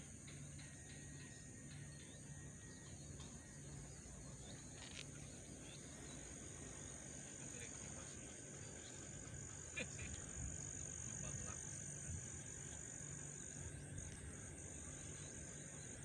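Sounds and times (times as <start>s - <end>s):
insect chorus trilling: 0.0s - 16.0s
low pulsing hum: 0.0s - 16.0s.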